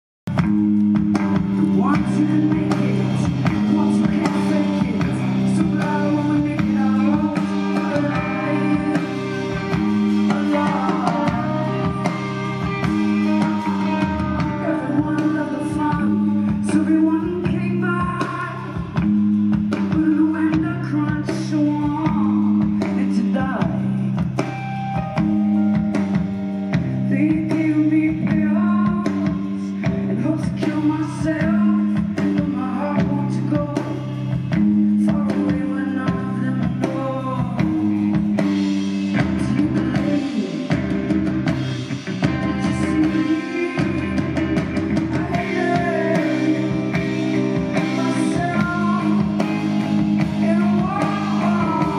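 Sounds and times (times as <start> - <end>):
drum kit: 0.3 - 51.9
electric guitar: 0.3 - 51.9
woman singing into a microphone: 1.6 - 19.0, 19.8 - 24.3, 27.1 - 41.0, 42.3 - 51.9.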